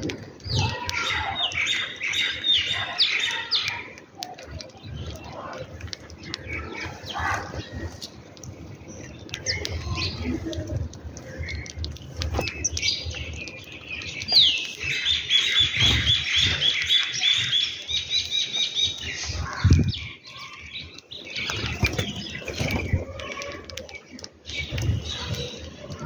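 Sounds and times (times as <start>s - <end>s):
sparrows chirping: 0.4s - 26.0s
wings fluttering: 21.3s - 26.0s.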